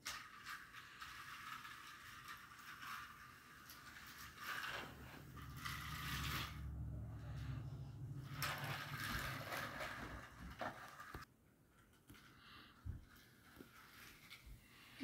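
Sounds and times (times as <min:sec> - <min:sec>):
toy car clattering over track: 0:00.0 - 0:12.3
toy car motor hum: 0:00.1 - 0:11.2.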